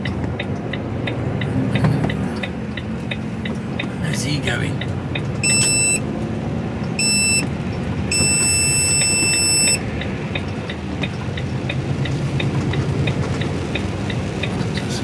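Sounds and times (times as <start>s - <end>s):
steady ticking: 0.0s - 15.0s
truck engine and road drone: 0.0s - 15.0s
electronic warning beep: 5.4s - 6.0s, 7.0s - 7.5s, 8.1s - 9.8s.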